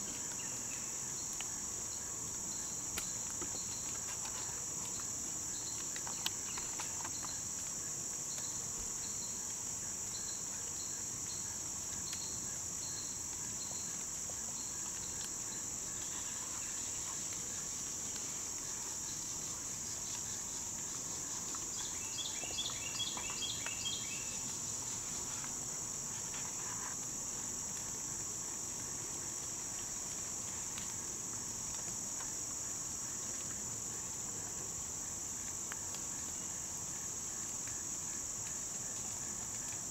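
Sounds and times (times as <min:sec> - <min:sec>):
crickets and insects chorus: 0:00.0 - 0:39.9.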